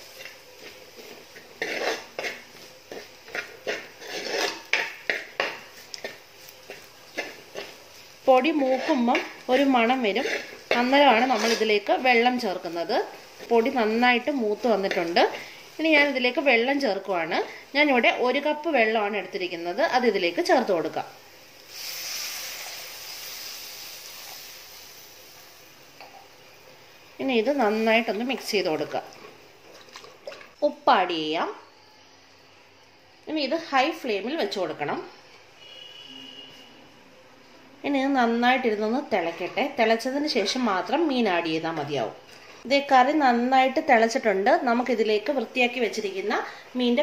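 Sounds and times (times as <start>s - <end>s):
hot pot hissing: 0.0s - 30.6s
metal spoon scraping clay pot: 0.1s - 7.8s, 8.4s - 12.4s
water pouring into pot: 21.7s - 25.4s.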